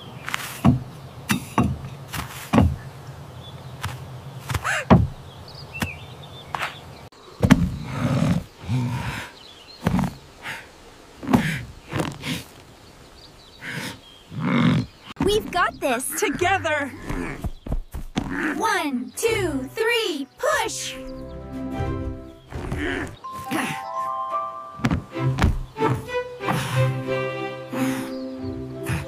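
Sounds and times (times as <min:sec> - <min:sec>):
cartoon thuds and knocks: 0:04.9 - 0:05.2, 0:24.8 - 0:25.7.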